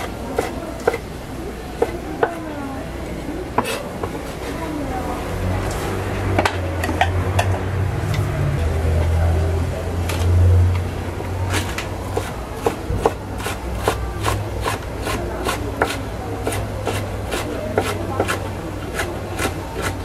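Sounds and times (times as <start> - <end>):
knife chopping on wooden board: 11.5 - 18.4.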